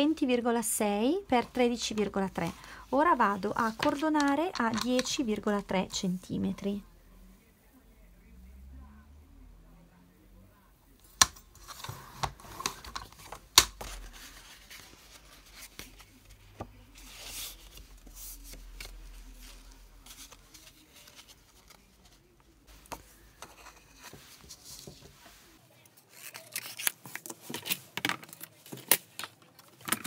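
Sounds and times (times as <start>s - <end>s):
paper rustling: 11.6s - 30.0s.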